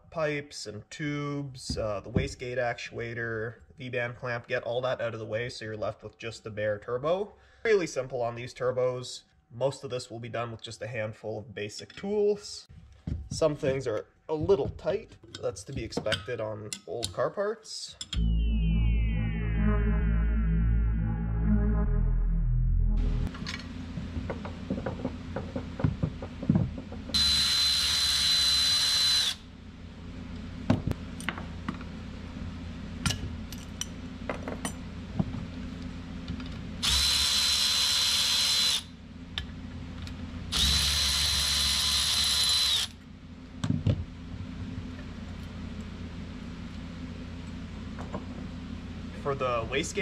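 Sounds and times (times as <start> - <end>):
cordless power tool whining: 27.1 - 29.4, 36.8 - 38.9, 40.5 - 43.0.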